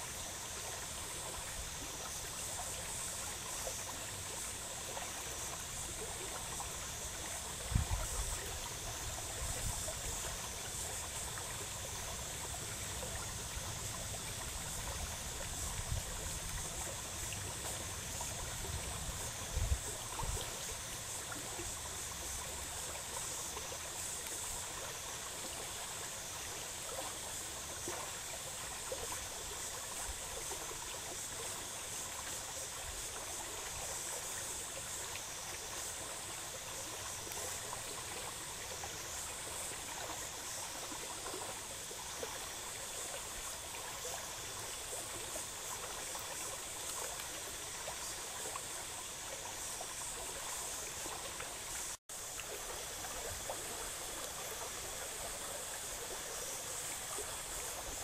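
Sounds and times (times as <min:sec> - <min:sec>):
stream flowing over rocks: 0:00.0 - 0:58.0.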